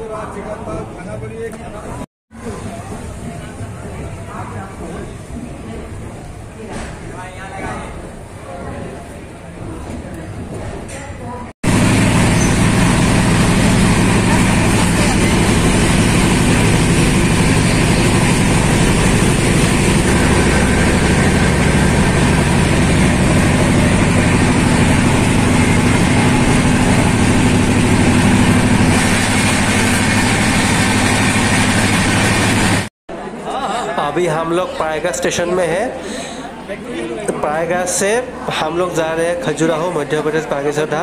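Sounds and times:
train rumbling along track: 0:11.7 - 0:32.9.

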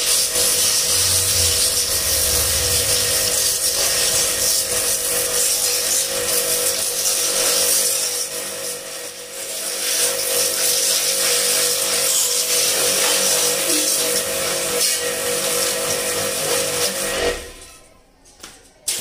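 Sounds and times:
water jet hissing: 0:00.0 - 0:08.0
pressure washer motor whine: 0:00.0 - 0:11.0, 0:11.9 - 0:17.9.

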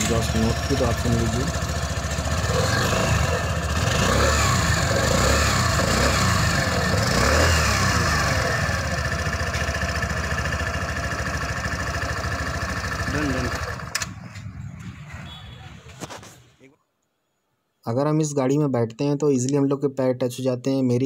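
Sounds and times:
scooter engine revving and idling: 0:00.0 - 0:15.3.

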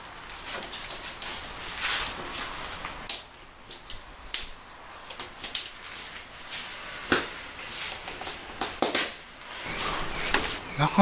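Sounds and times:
tent fabric rustling: 0:00.0 - 0:03.0, 0:05.7 - 0:08.5.

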